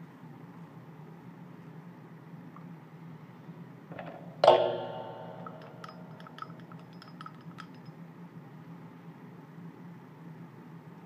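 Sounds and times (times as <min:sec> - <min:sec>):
steady low hum: 0:00.0 - 0:11.0
sharp metallic clink: 0:04.4 - 0:08.0.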